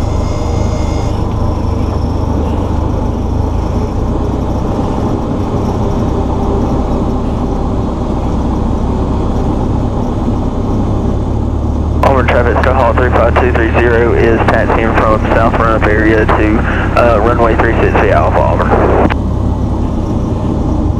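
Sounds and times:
propeller plane engine running: 0.0s - 20.9s.

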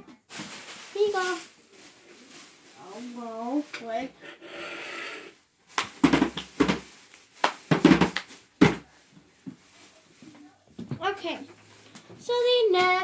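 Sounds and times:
soft hiss: 0.1s - 13.0s
knocks and thumps: 5.8s - 6.9s, 7.7s - 8.9s.

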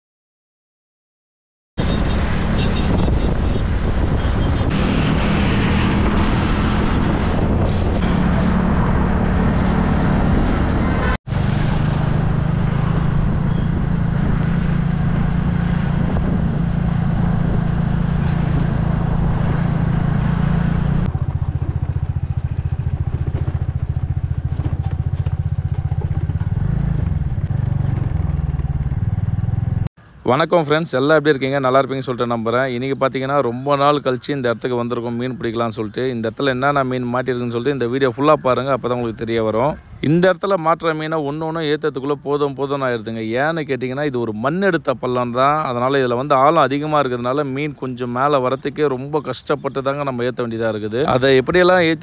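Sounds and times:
vehicle engine running: 1.9s - 29.9s.

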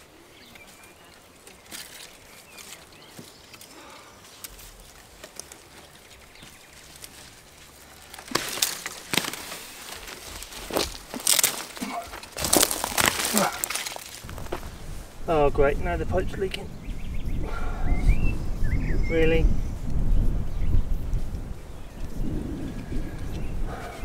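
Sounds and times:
scraping in dry soil: 0.0s - 16.6s
root crackling pulled from ground: 0.6s - 15.5s.

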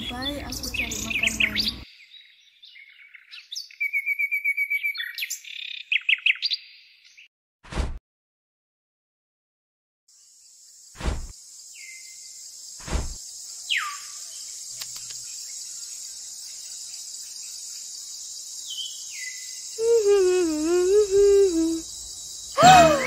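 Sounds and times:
insects chirring: 10.1s - 23.0s.

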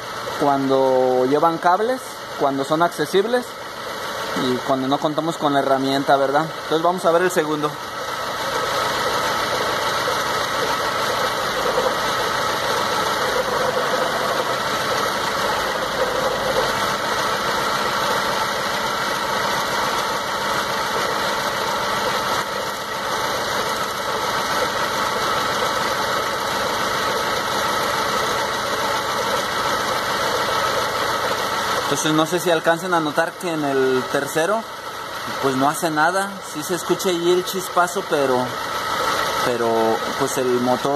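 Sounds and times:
car engine idling rough with misfire: 0.0s - 40.9s.

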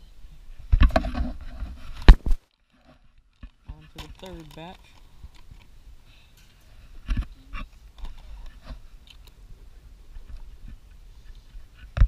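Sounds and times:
handling clicks and knocks: 2.0s - 5.7s.

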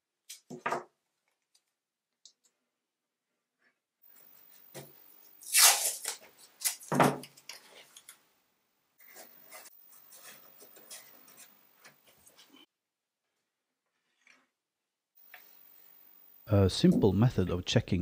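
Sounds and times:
tape rustling and rubbing: 4.2s - 8.2s, 9.0s - 12.7s
tape ripping off roll: 5.4s - 7.3s.

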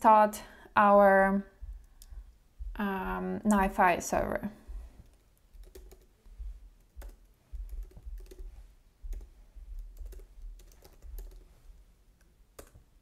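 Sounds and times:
typing on a keyboard: 5.0s - 6.2s, 6.8s - 11.5s, 12.6s - 12.8s.

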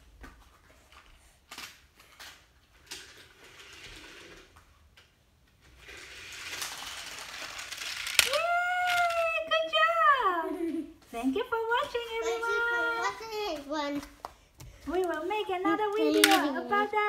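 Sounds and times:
toy train whirring clatter: 1.5s - 4.6s, 5.6s - 9.3s
plastic pieces clicking: 5.9s - 9.4s, 15.9s - 16.6s.

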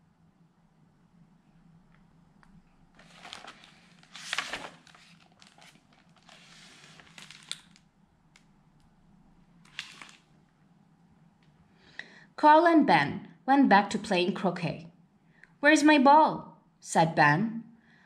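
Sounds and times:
paper page rustling: 3.0s - 7.8s, 9.7s - 10.3s.

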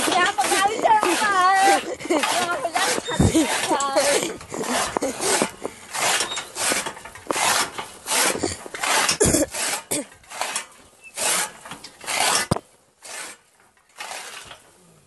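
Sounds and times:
phone rubbing against clothing: 0.2s - 9.9s.

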